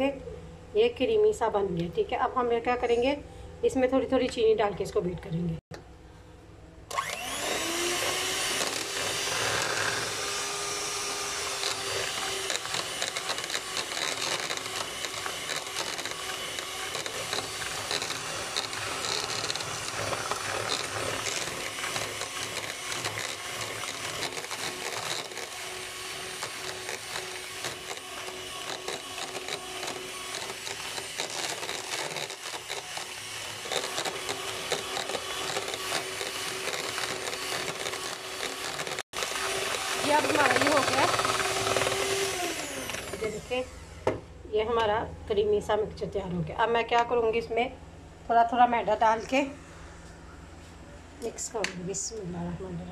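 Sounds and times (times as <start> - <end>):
electric hand mixer running: 6.9 - 44.2.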